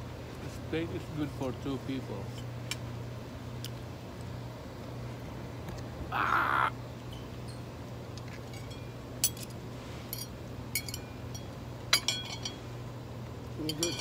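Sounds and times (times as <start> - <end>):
crow cawing: 6.1 - 6.8
forks clinking on a plate: 13.6 - 14.0.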